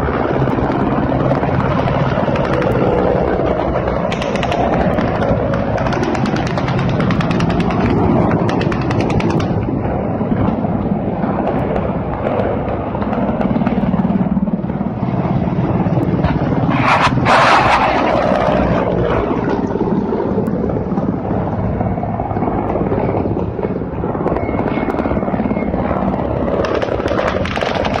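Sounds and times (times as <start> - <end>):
helicopters passing: 0.0 - 28.0
loud rush of noise: 0.0 - 28.0
rapid even ticking: 0.3 - 9.8.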